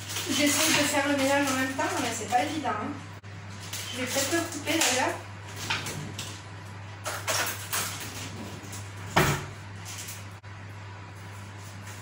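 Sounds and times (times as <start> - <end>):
rustles and clatters: 7.0 - 10.4.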